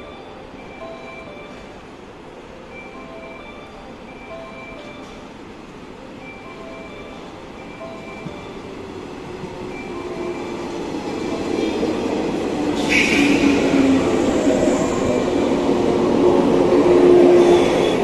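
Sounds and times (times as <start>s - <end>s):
electric train running: 6.2s - 18.0s.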